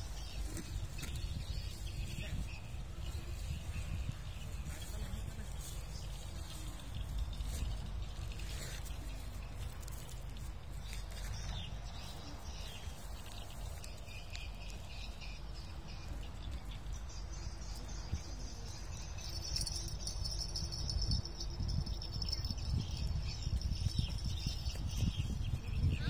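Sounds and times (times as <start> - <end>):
wind rumbling on microphone: 0.0 - 26.0.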